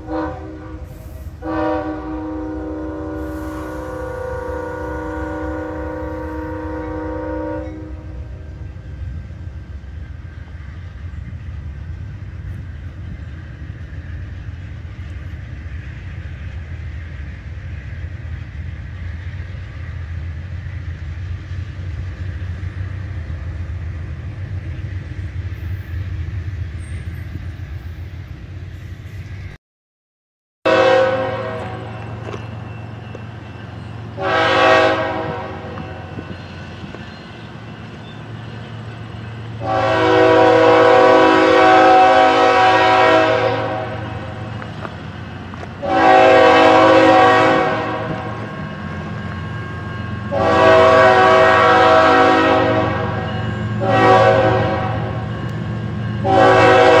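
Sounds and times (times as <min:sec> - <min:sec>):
locomotive horn blasts: 0:00.0 - 0:08.6, 0:30.6 - 0:32.3, 0:34.2 - 0:36.3, 0:39.5 - 0:44.6, 0:45.7 - 0:49.1, 0:50.2 - 0:55.6, 0:56.2 - 0:57.0
passing passenger train drone: 0:00.0 - 0:29.6, 0:30.7 - 0:57.0.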